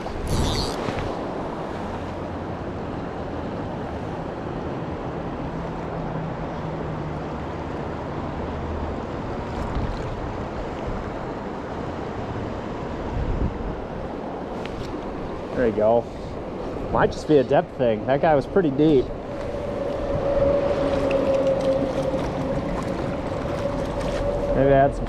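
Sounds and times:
water rushing over rocks: 18.3s - 25.0s.

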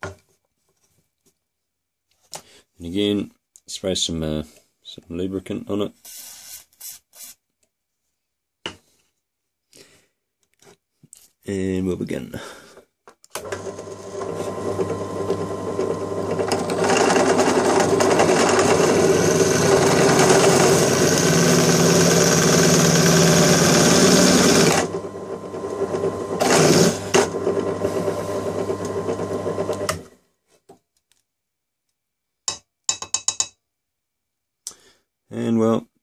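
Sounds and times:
drill press motor hum: 13.4s - 30.1s
drill bit grinding metal: 13.6s - 30.0s.

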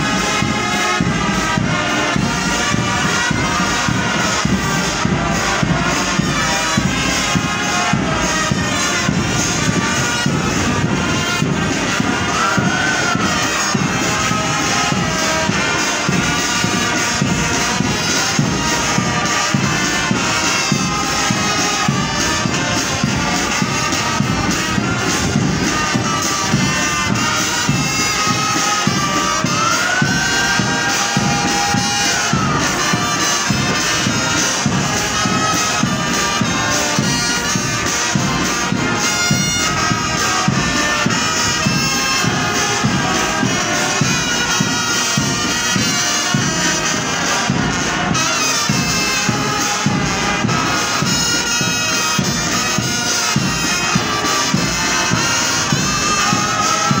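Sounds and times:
marching band drums: 0.0s - 57.0s
wind instruments holding notes: 0.0s - 57.0s.

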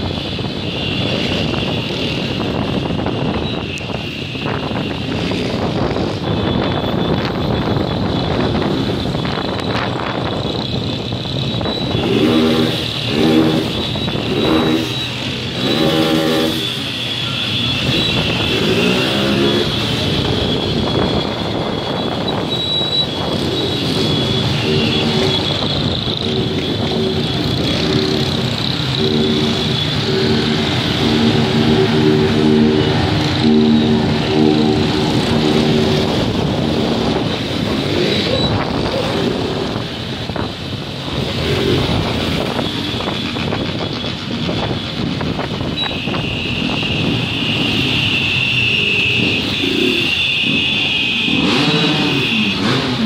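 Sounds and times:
motorcycle engines running: 4.5s - 48.3s, 49.1s - 53.0s
wind on microphone: 17.8s - 47.7s.

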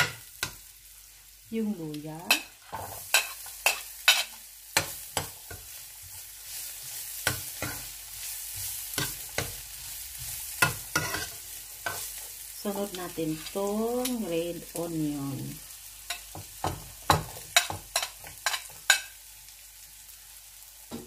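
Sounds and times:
garlic sizzling in oil: 0.0s - 21.0s
spatula scraping a pan: 2.3s - 12.2s, 17.2s - 19.2s.

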